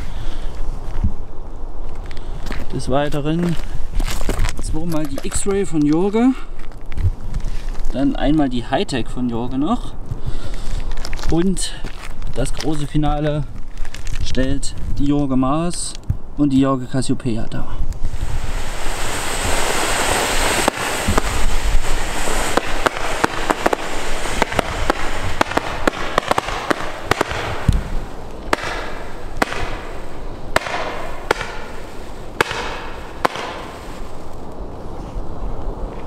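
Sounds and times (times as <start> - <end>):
fireworks fizzing and crackling: 18.0 - 34.7
firework launch shots: 18.1 - 34.3.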